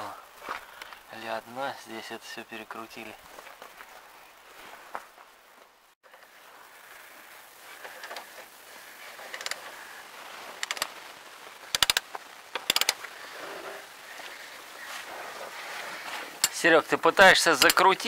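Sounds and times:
metal tools clicking on bolts: 9.3 - 9.6, 11.7 - 12.0, 12.6 - 13.0, 16.4 - 16.6, 17.5 - 18.0.

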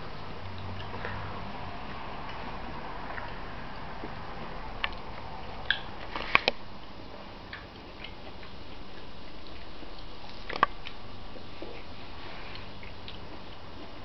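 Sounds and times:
rind snapping: 5.6 - 6.6.

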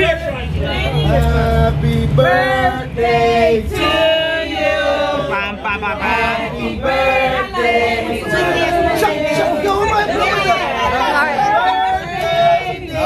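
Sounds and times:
men and women singing together: 1.0 - 13.0.

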